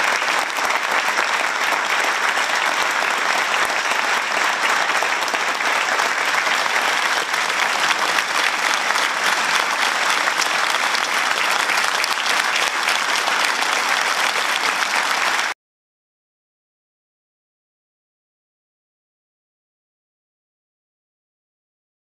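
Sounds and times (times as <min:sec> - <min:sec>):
crowd applauding: 0:00.0 - 0:15.6.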